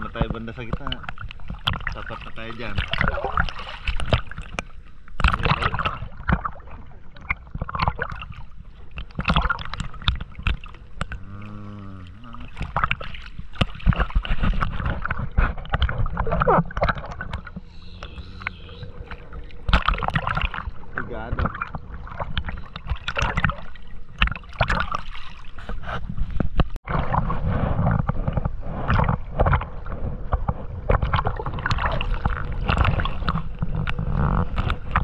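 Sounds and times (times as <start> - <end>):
water splashing against boat: 0.0 - 35.0
low rumble: 17.1 - 22.8.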